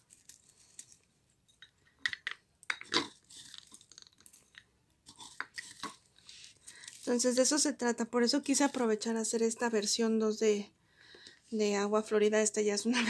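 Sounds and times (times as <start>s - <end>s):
dried herbs crackling and crunching: 0.0s - 1.1s, 3.0s - 7.6s.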